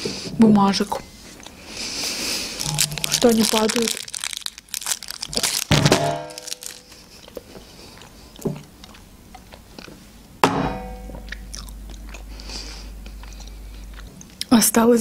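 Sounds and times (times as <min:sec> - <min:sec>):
person chewing wetly: 0:01.4 - 0:05.7, 0:06.3 - 0:10.1, 0:11.2 - 0:14.5.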